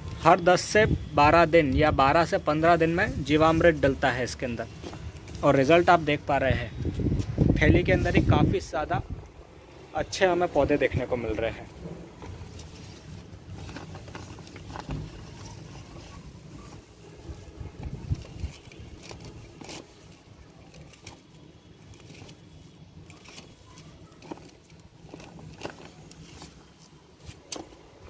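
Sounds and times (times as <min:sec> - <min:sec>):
leaves rustling: 0:00.0 - 0:28.0
stems clicking and snapping: 0:17.8 - 0:28.0.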